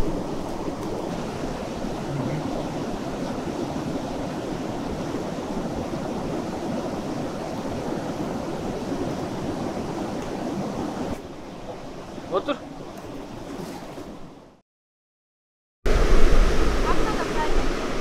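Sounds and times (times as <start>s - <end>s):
river rushing: 0.0s - 14.4s, 15.9s - 18.0s.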